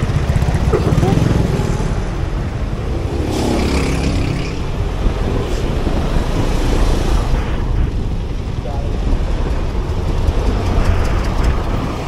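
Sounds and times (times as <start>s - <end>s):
dense traffic engines rumbling: 0.0s - 12.0s.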